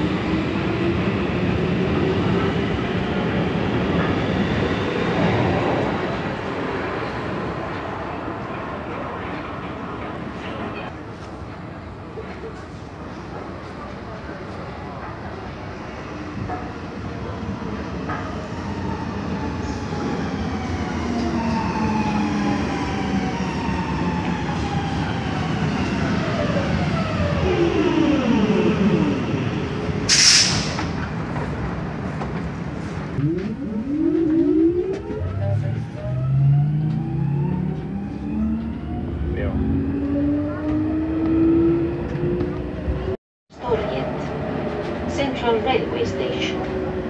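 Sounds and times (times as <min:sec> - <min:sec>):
metro train rumbling: 0:00.0 - 0:47.0
train whine falling in pitch: 0:33.2 - 0:39.2.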